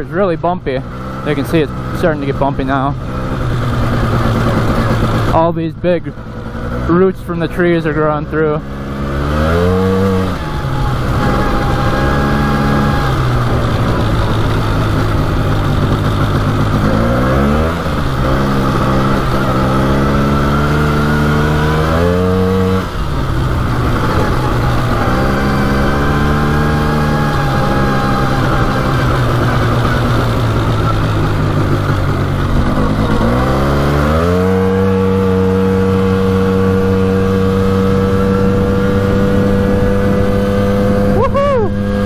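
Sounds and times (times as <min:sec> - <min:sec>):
atv engine revving: 0:00.0 - 0:42.0.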